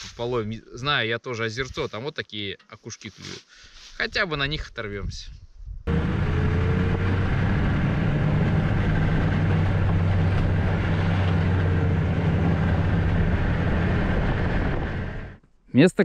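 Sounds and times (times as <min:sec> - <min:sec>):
snowmobile engine droning: 0:05.9 - 0:15.4.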